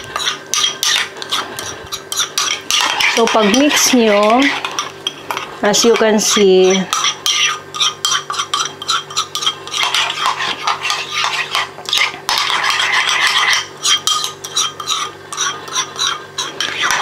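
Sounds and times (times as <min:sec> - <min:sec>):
spoon clinking in ceramic bowl: 0:06.6 - 0:10.3.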